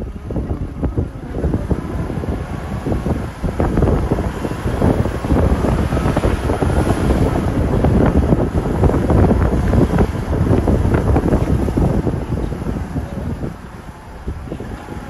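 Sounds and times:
car road noise: 0.0s - 15.0s
wind buffeting microphone: 0.0s - 15.0s.

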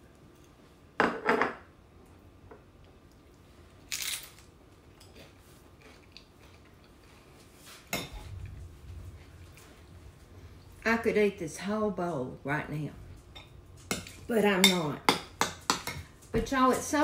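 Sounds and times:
chip crunching while chewed: 3.9s - 5.2s.

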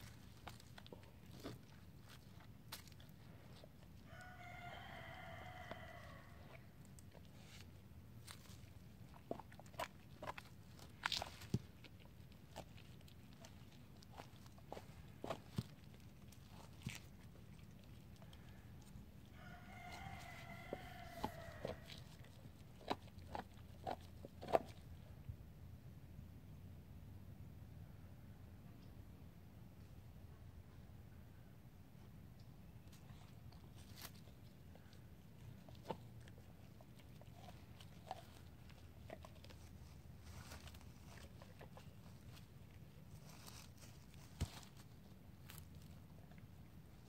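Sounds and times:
rooster crowing: 4.1s - 6.6s, 19.3s - 22.0s
dog gnawing on bone: 5.7s - 25.0s, 33.2s - 45.7s.

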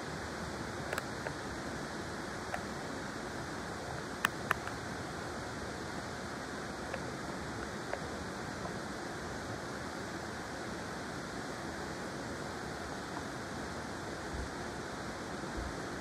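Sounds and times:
flowing river water: 0.0s - 16.0s.

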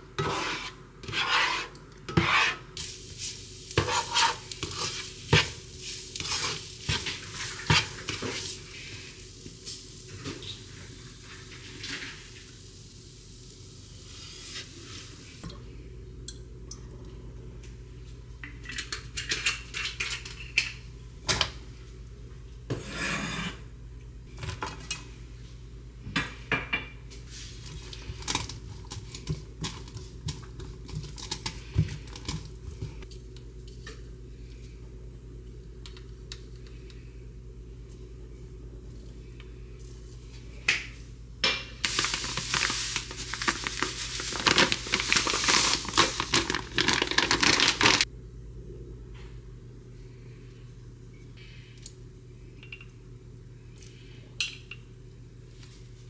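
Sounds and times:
spatula scraping a frying pan: 0.2s - 2.7s, 3.8s - 8.5s, 22.7s - 23.6s
plastic bag rustling: 41.8s - 48.1s.

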